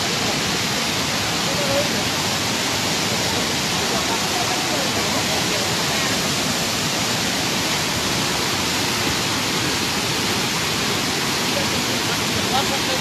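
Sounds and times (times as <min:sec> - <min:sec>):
flood water rushing: 0:00.0 - 0:13.0.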